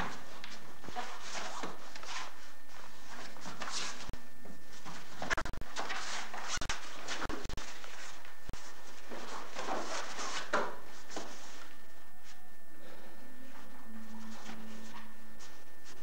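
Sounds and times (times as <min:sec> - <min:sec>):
men grappling on foam mats: 0:00.0 - 0:11.9.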